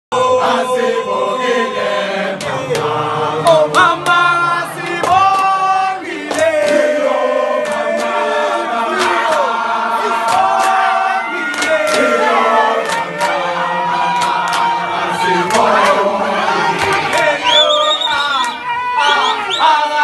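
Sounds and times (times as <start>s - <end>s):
boys chanting in unison: 0.2s - 20.0s
sharp hand claps: 5.0s - 5.6s, 6.2s - 7.0s, 7.6s - 8.2s, 10.2s - 10.9s, 11.5s - 12.1s, 12.8s - 13.4s, 14.1s - 14.7s, 16.8s - 17.3s.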